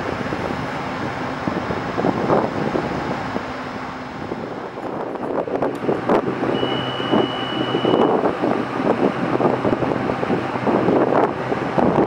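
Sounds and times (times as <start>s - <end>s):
electric train hum: 0.0s - 12.0s
wind buffeting microphone: 0.0s - 12.0s
steady high tone: 6.5s - 8.8s.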